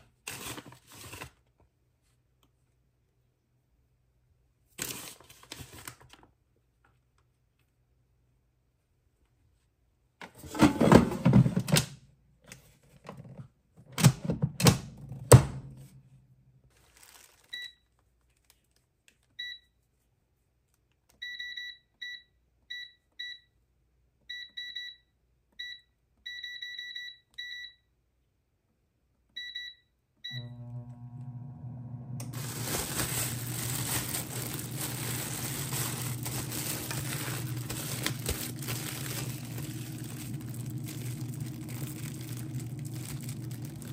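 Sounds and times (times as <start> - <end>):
fan humming: 30.4 - 43.9.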